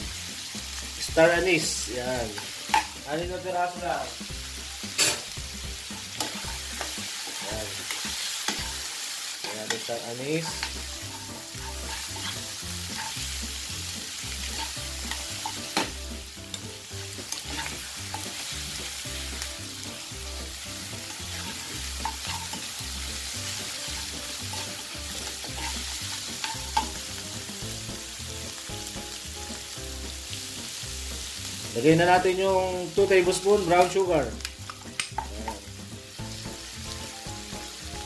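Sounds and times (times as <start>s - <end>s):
meat sizzling in hot oil: 0.0s - 38.0s
metal spoon scraping pan: 5.0s - 5.3s, 6.2s - 13.4s, 14.4s - 16.0s, 17.3s - 18.4s, 21.1s - 22.7s, 23.6s - 27.0s.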